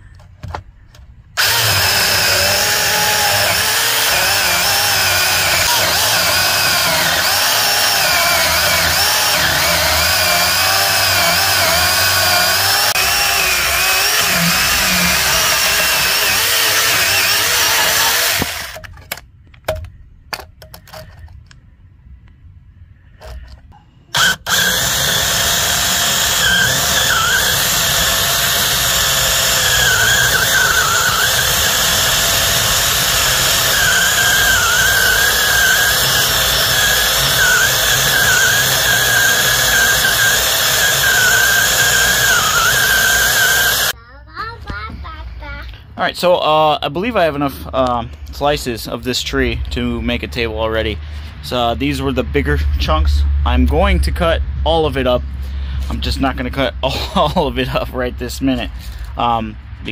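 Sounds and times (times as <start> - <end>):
electric chainsaw cutting log: 1.4 - 18.9, 24.1 - 44.0.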